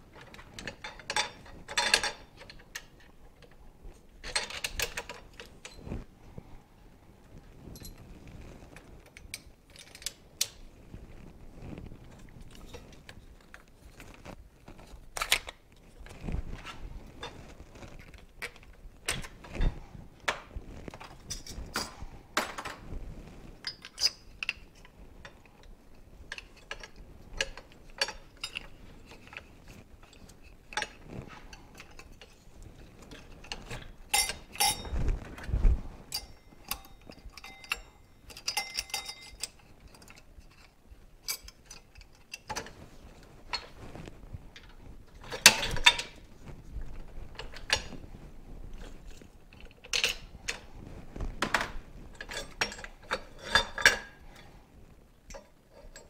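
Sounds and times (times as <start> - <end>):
metal clicks and clinks: 36.1 - 42.7.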